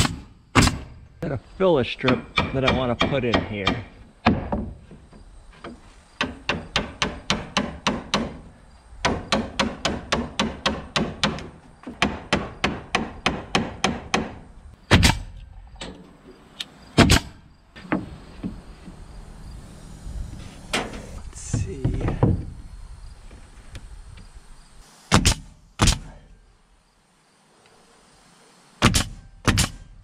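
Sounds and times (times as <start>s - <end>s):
hammer hitting a nail: 2.1s - 4.7s, 6.2s - 8.4s, 9.0s - 15.2s, 28.8s - 29.8s
loud hammer impacts: 9.0s - 15.3s, 17.0s - 18.6s, 25.1s - 26.2s, 28.8s - 30.0s.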